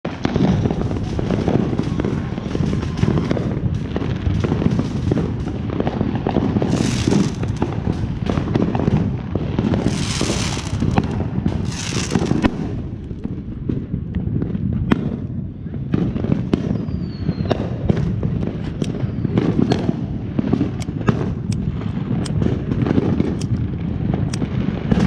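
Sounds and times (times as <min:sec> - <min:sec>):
fireworks popping and banging: 0:00.0 - 0:25.0
fireworks hissing: 0:06.3 - 0:08.5, 0:09.6 - 0:13.6
low rumble: 0:09.7 - 0:16.2.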